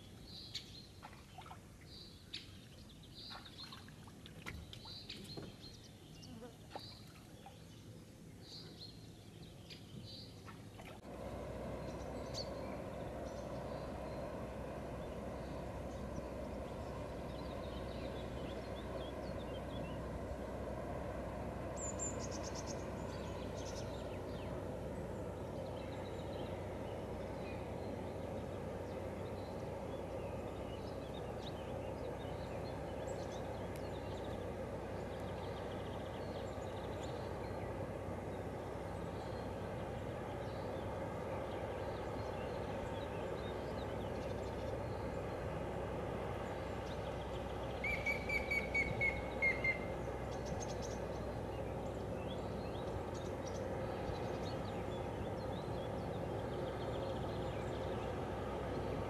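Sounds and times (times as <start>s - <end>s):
birds calling faintly: 0.0s - 59.0s
distant ship engine drone: 0.0s - 59.0s
bird high chirps: 47.8s - 49.9s.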